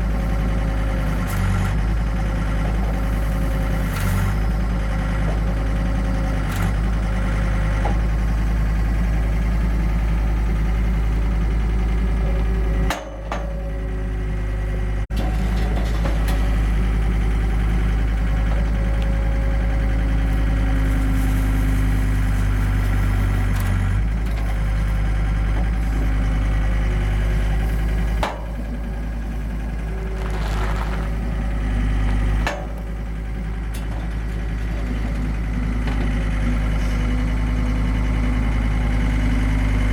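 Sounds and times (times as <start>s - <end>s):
diesel engine running: 0.0s - 39.9s
bale slicer cutting hay: 20.2s - 23.6s, 29.9s - 31.5s.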